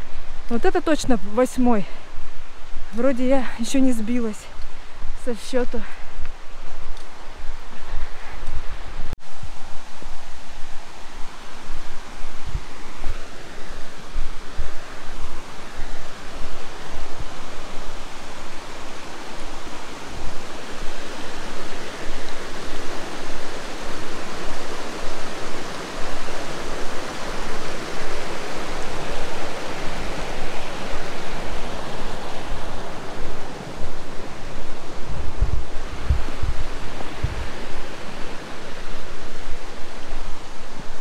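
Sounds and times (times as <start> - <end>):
river water roaring: 0.0 - 41.0
wind thumps on microphone: 11.6 - 13.2, 32.3 - 41.0.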